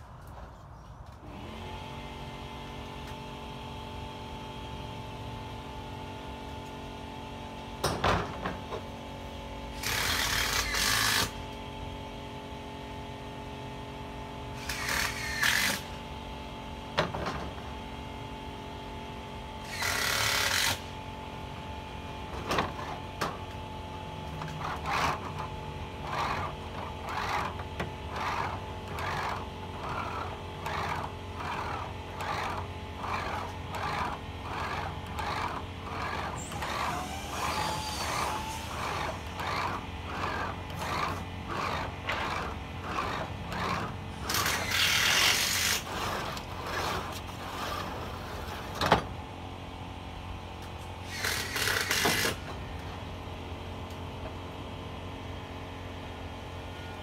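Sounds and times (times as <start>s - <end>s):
steady background hum: 0.0s - 57.0s
roller bender scraping metal: 24.2s - 49.2s.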